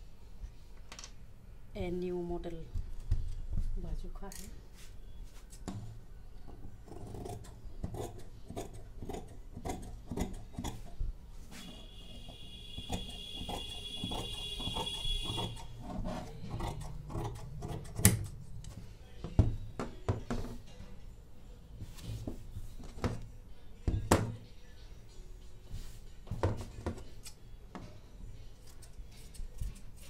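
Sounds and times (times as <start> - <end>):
scissors snipping fabric: 6.9 - 10.8.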